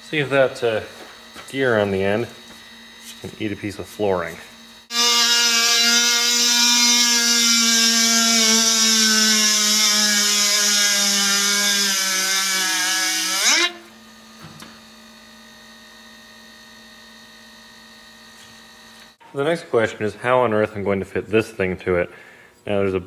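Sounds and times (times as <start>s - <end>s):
faint hum: 13.1s - 23.0s.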